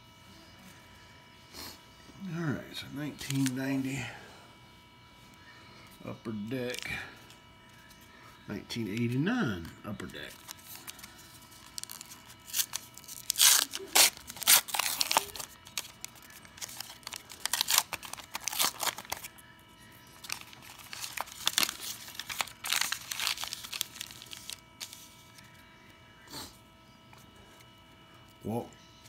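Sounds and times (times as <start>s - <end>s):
foil wrapper ripping and crinkling: 3.2s - 3.6s, 10.3s - 19.4s, 20.0s - 25.5s.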